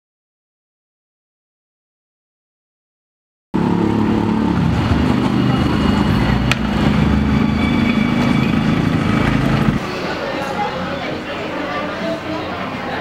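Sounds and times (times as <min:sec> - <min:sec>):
vehicle engines rumbling: 0:03.6 - 0:13.0.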